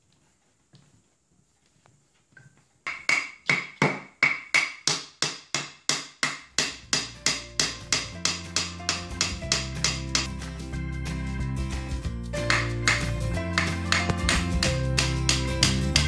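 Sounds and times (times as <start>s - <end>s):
hammer striking steel rod: 2.9s - 10.3s, 12.4s - 16.0s
background music: 6.6s - 16.0s.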